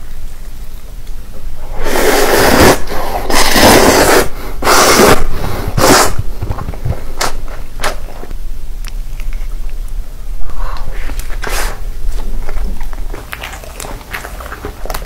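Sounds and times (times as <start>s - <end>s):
slurping noodles: 1.7s - 6.2s, 11.0s - 11.9s.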